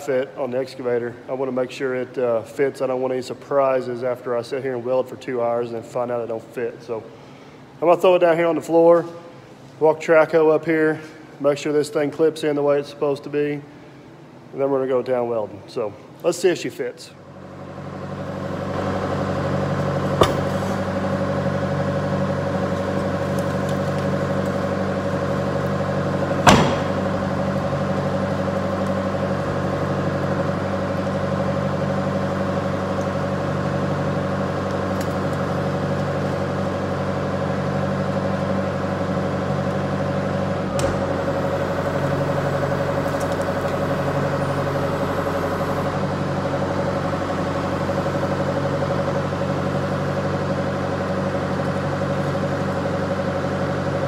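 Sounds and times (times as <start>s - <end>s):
excavator diesel engine running: 17.3s - 54.0s
sharp metal knocks: 26.4s - 27.1s.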